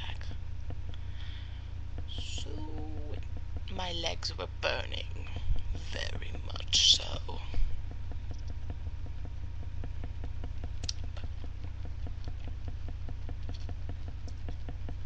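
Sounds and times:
fast regular ticking: 0.0 - 15.0
steady low hum: 0.0 - 15.0
small clicks: 5.1 - 15.0.

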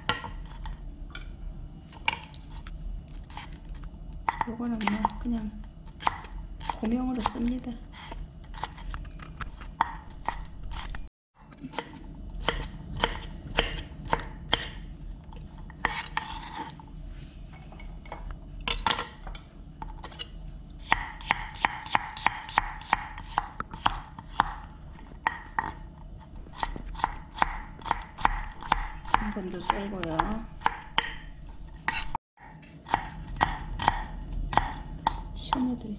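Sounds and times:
knife chopping on wooden board: 6.0 - 8.9, 11.8 - 14.8, 20.9 - 25.8, 26.4 - 32.2, 32.9 - 35.7.

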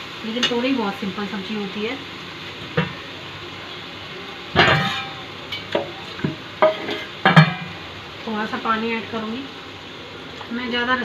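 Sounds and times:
food sizzling in a pan: 0.0 - 11.0
spoon knocking and scraping pan: 2.7 - 3.0, 4.6 - 7.8.

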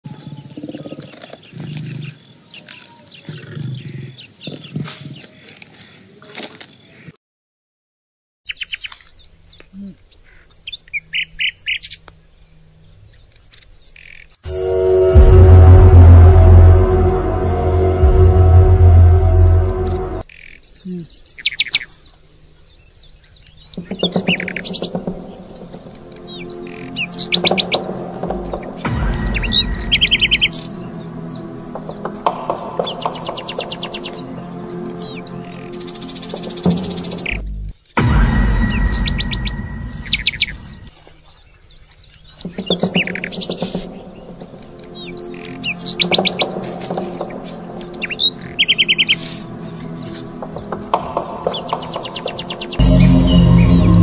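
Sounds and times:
birds chirping: 0.0 - 7.2, 8.5 - 15.2, 19.2 - 54.0
tiger growling: 3.3 - 4.2
dark loud music: 14.5 - 20.3, 23.8 - 40.9, 42.6 - 54.0.

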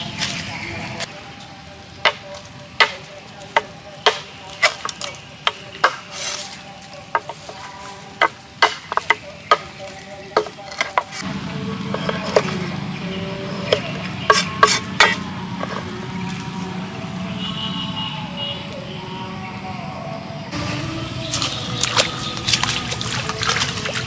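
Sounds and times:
cleaver chopping bamboo on board: 2.0 - 6.5, 8.2 - 11.3, 11.9 - 12.7, 13.6 - 15.8.

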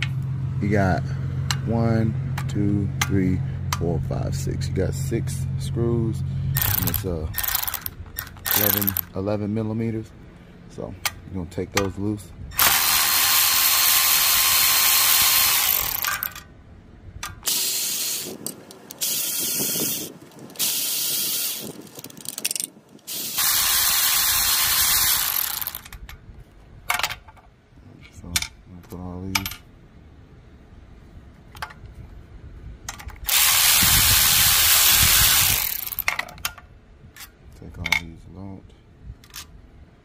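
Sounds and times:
cordless power tool spinning bolts: 6.6 - 9.2, 12.6 - 16.5, 17.3 - 26.1, 33.0 - 36.4.

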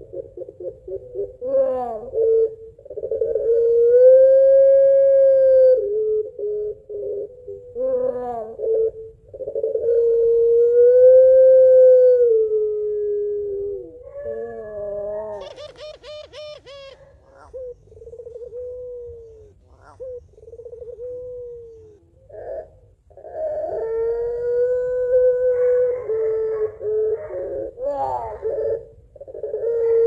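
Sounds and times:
dove cooing: 0.0 - 30.0
dove rolling laughing call: 14.0 - 30.0.

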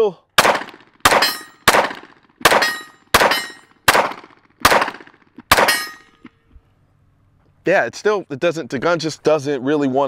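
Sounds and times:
pistol shots: 0.4 - 6.1.

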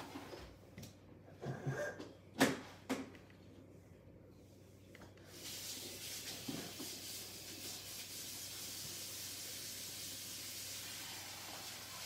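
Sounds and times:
tap water running into tub: 5.3 - 12.0.

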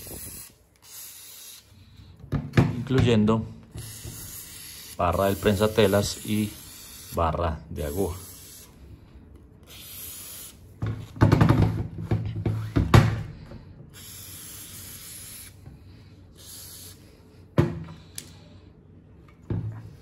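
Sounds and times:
aerosol spray hissing: 3.8 - 7.2, 9.7 - 10.6, 14.0 - 15.6, 16.4 - 17.1.

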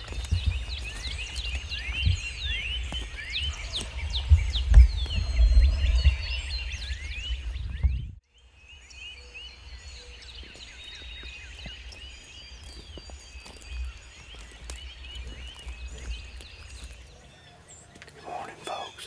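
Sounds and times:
low rumble on microphone: 0.0 - 8.2
songbirds chirping and trilling: 0.0 - 19.0.

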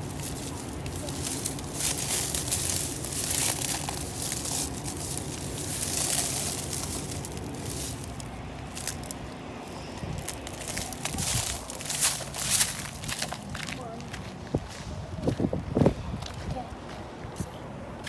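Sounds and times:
crackling and crunching rustle: 0.0 - 14.3
steady low rumble: 0.0 - 18.0.

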